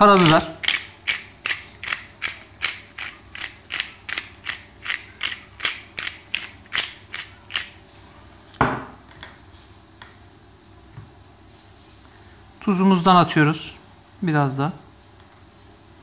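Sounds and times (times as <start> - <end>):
pepper grinder grinding: 0.0 - 7.8
grinder knock on wooden table: 8.6 - 9.0.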